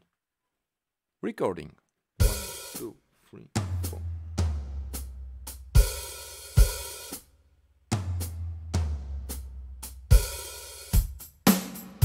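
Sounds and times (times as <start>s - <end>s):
drum kit pattern: 2.2s - 12.0s
low bass notes: 3.6s - 5.9s.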